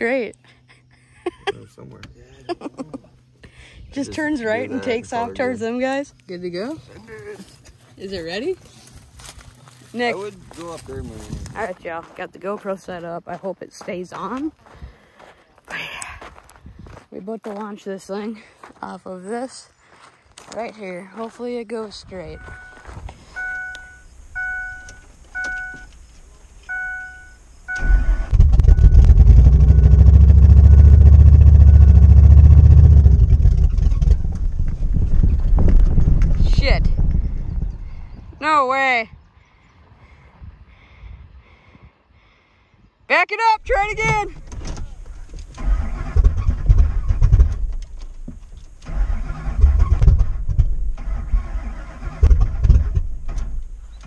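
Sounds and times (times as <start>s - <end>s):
truck engine starting and running: 22.0s - 38.1s, 43.7s - 54.0s
dashboard warning chime: 22.2s - 25.9s, 26.7s - 29.0s.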